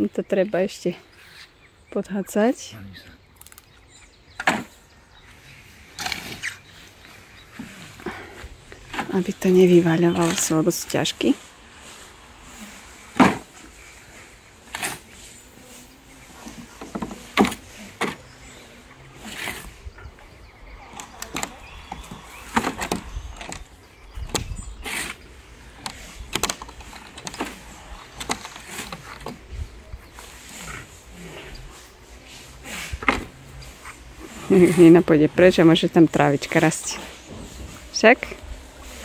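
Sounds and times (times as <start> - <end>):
spade chopping and scraping soil: 13.1 - 13.6, 14.7 - 15.1.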